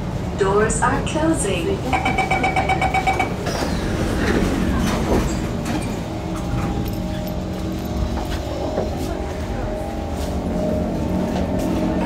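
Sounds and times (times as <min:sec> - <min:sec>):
rapid two-tone warning beeping: 0:01.8 - 0:03.6
train doors knocking and rattling: 0:01.8 - 0:09.4.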